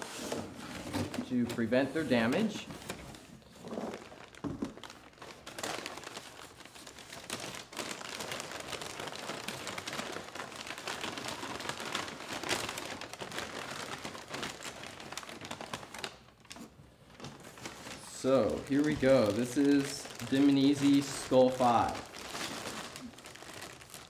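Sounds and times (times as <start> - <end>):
paper crinkling and rustling: 0.0 - 24.0.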